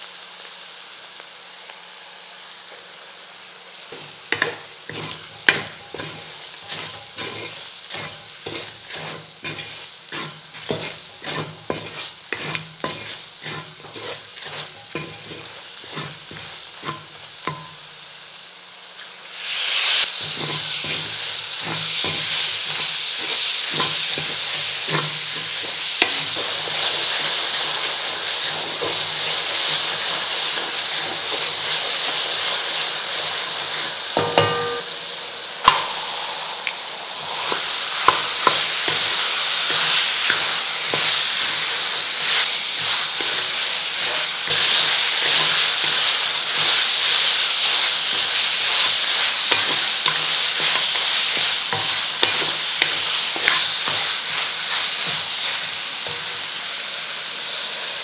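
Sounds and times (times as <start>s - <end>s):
food sizzling in metal pan: 0.0s - 58.0s
spatula scraping pan: 3.9s - 17.8s, 20.0s - 35.0s, 35.6s - 56.4s
ringing metal clang: 34.2s - 35.0s
sharp knock: 35.6s - 36.7s.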